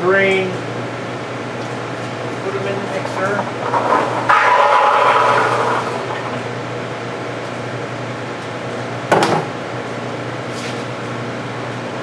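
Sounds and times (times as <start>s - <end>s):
electric cement mixer humming: 1.8s - 7.6s.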